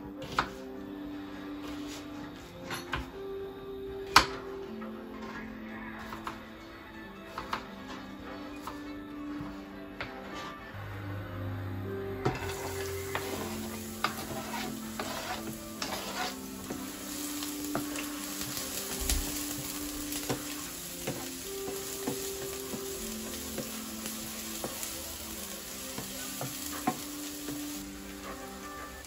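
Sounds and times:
onion sizzling in frying pan: 12.2 - 29.0
onion scraped off cutting board: 13.2 - 16.4.

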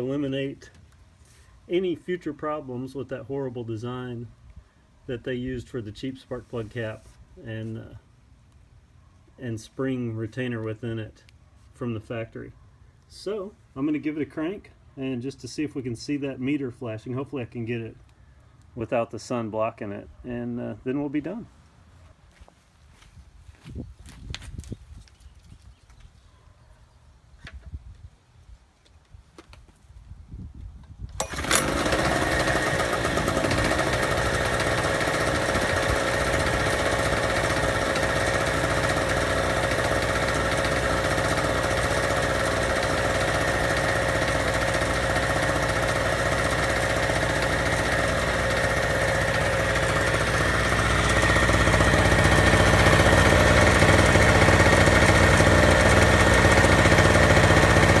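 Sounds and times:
generator engine pull-started and running: 31.0 - 58.0.

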